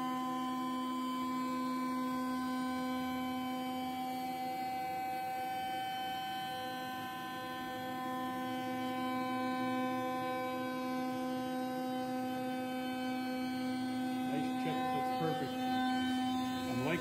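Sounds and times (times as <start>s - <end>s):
router spindle whining: 7.9s - 17.0s.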